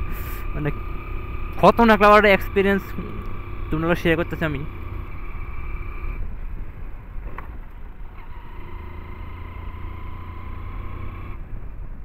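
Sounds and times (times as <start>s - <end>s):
motorcycle engine cruising: 0.0s - 12.0s
wind rumble on microphone: 5.2s - 8.4s, 10.8s - 12.0s.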